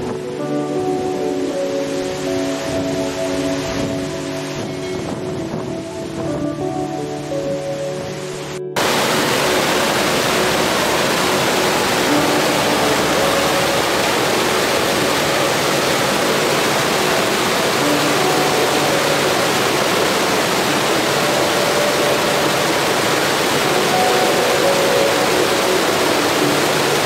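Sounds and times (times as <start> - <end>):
stream rushing over boulders: 0.0 - 27.0.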